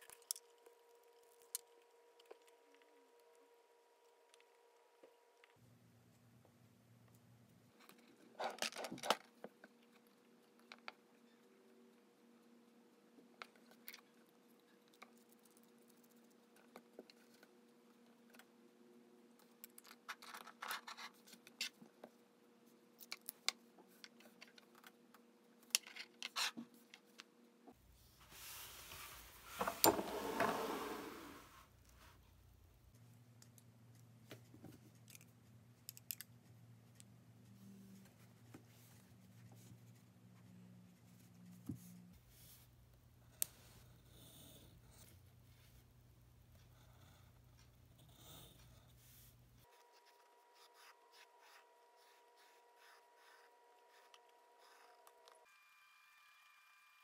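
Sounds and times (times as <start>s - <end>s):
sketchbook sliding across wooden desk: 28.3s - 31.6s.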